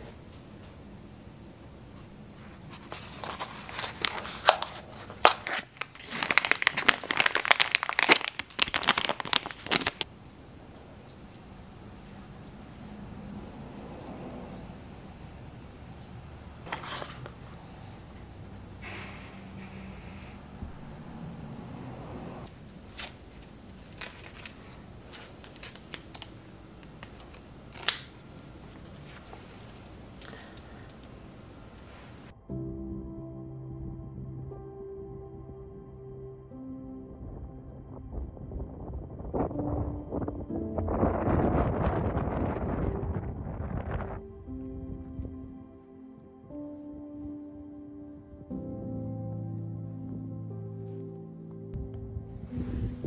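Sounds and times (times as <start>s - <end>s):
cardboard box flap crackling: 2.8s - 10.1s
plastic bag crinkling: 2.8s - 10.1s, 22.7s - 31.2s.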